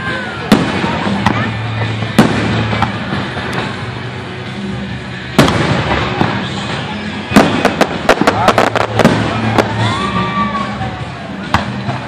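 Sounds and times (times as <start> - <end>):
firework shells bursting: 7.3 - 9.8
small firework cracks: 7.3 - 9.9.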